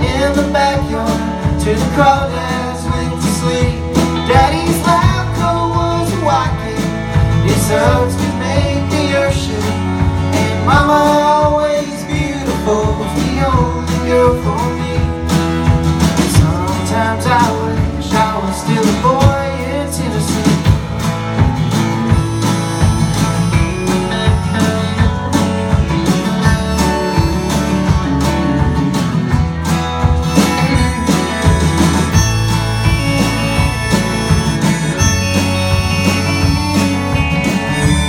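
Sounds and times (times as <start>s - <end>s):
person singing: 0.0s - 15.1s
live country band playing: 0.0s - 38.0s.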